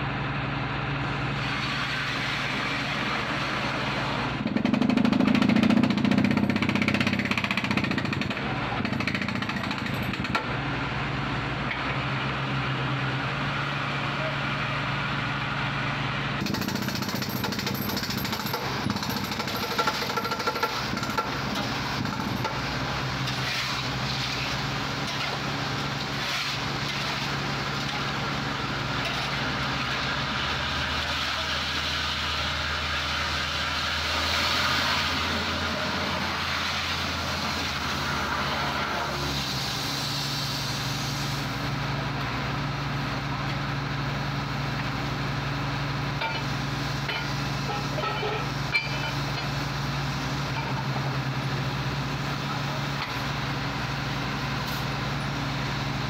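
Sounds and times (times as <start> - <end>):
hammering drilling noise: 4.4 - 10.5, 16.4 - 22.7.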